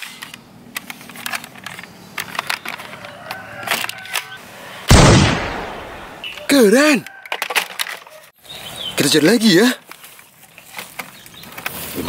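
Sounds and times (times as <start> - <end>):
plastic toy rifle clicks and rattles: 0.0 - 4.4, 7.1 - 8.1.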